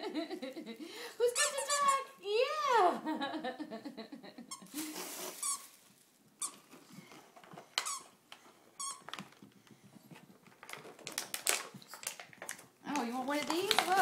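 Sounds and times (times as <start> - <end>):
squeaky dog toy squeaking: 1.3 - 2.2.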